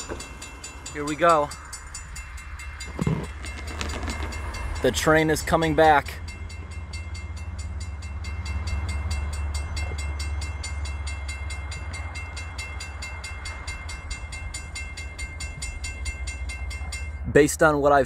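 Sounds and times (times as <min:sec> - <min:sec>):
freight train rumbling: 0:00.0 - 0:18.0
railroad crossing bell ringing: 0:00.0 - 0:18.0.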